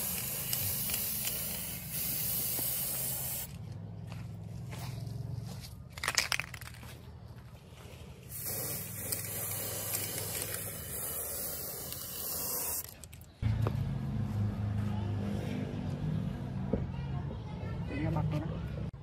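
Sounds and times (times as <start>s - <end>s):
spray paint can hissing: 0.0s - 3.6s, 8.3s - 13.3s.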